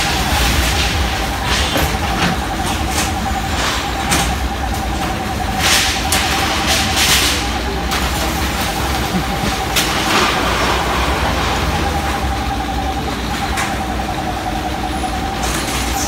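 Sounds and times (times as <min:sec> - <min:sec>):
diesel engine running with whine: 0:00.0 - 0:16.0.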